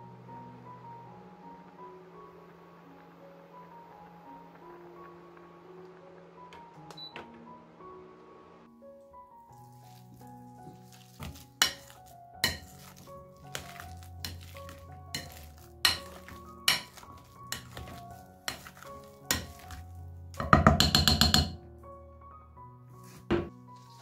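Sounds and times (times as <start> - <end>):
soft background music: 0.0 - 24.0
masher knocking glass bowl: 20.4 - 21.6.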